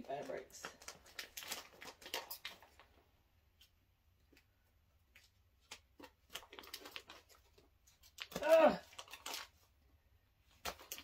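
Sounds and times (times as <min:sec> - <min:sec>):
plastic crinkling: 0:00.0 - 0:09.8
scissors snipping plastic: 0:10.5 - 0:11.0.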